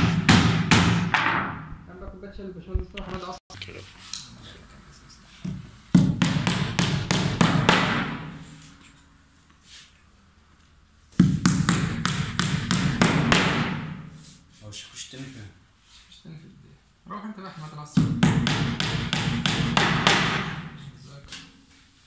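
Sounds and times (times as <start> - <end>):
hammering nails into wood: 0.0 - 1.6, 5.5 - 8.4, 11.2 - 14.0, 18.0 - 20.8.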